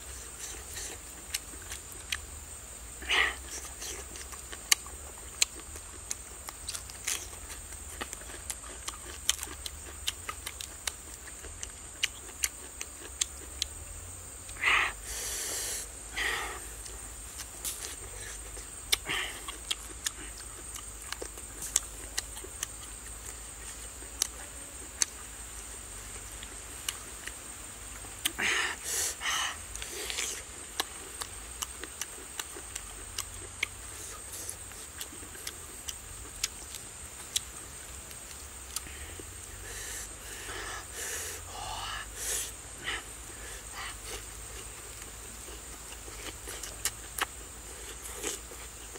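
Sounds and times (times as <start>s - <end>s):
person chewing and lip-smacking: 3.4s - 13.7s, 16.8s - 25.2s, 29.8s - 37.5s, 43.7s - 48.9s
hissing sucking breaths: 14.5s - 17.0s, 28.3s - 30.5s, 38.8s - 44.4s.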